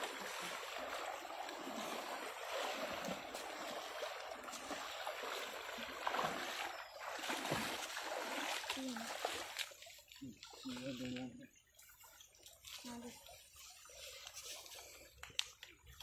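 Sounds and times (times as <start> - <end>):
stream water rushing: 0.0 - 10.6
splashes of wading: 0.0 - 16.0.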